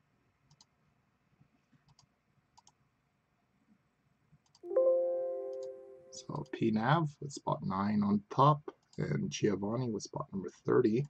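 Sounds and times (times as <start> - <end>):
faint computer mouse clicks: 0.5 - 0.7, 1.8 - 2.8, 4.4 - 4.6.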